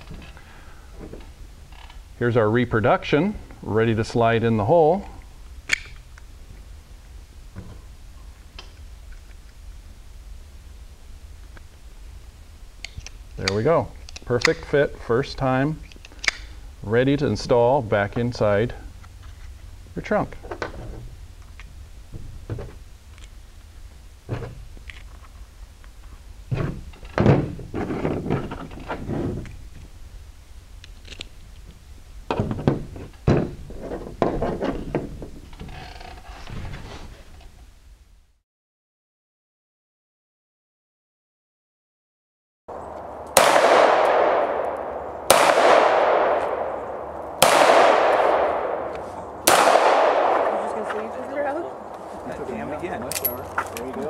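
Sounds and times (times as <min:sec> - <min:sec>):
pistol shots with echo: 0:43.0 - 0:51.9.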